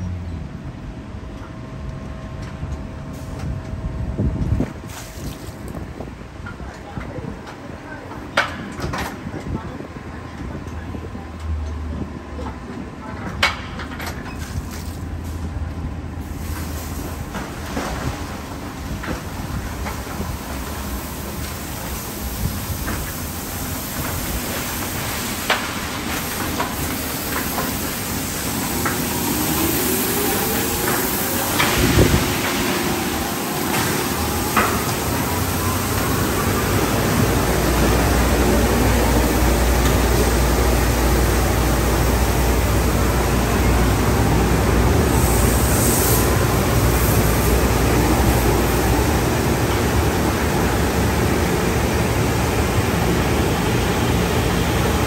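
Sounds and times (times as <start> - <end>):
water jets spraying: 4.8 - 5.8, 16.2 - 55.0.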